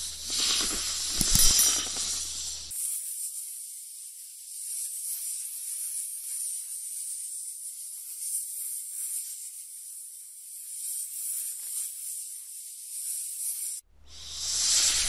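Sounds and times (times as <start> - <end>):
snake hissing: 0.0 - 2.8, 13.5 - 15.0.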